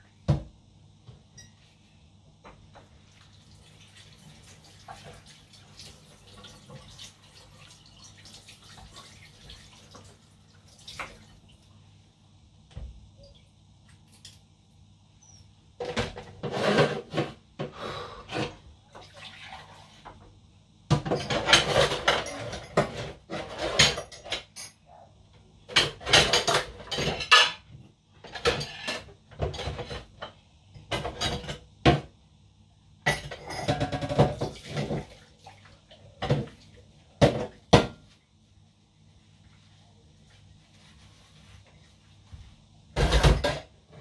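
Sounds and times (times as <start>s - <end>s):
dishes and cutlery clattering: 20.9s - 24.8s, 25.7s - 32.1s, 33.0s - 35.1s, 43.0s - 43.7s.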